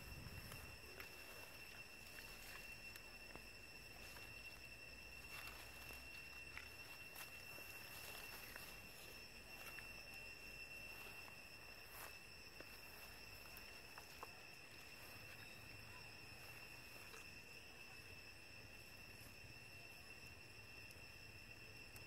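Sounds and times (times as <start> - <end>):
high insect drone: 0.0 - 22.0.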